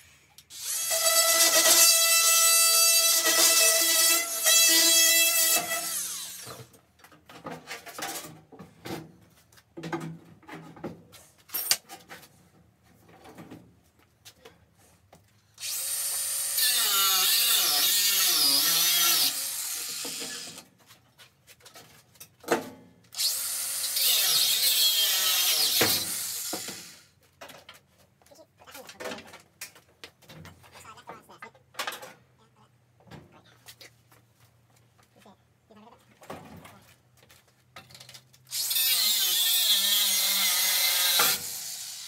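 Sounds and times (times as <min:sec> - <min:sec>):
angle grinder cutting: 0:00.5 - 0:06.7, 0:15.6 - 0:20.6, 0:23.2 - 0:27.1, 0:38.5 - 0:42.0.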